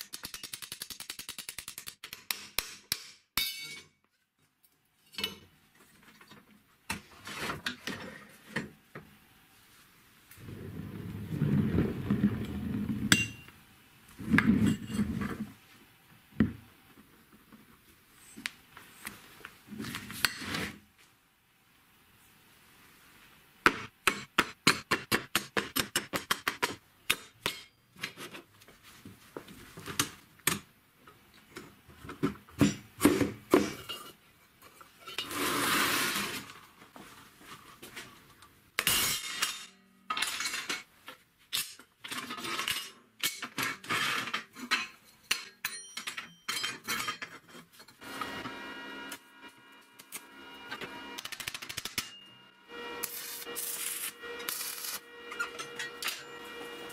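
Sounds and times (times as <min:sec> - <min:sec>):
metal scrape: 0:35.0 - 0:36.6, 0:52.0 - 0:56.9.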